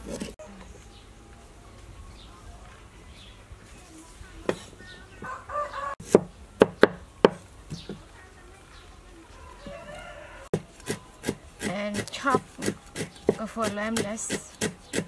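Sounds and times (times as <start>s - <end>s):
cleaver chopping on wooden block: 6.0s - 7.9s, 10.6s - 15.0s.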